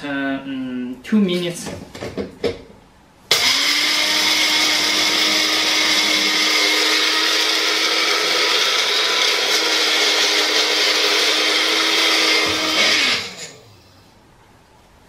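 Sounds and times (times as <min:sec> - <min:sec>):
blender grinding coffee beans: 0:03.3 - 0:13.7.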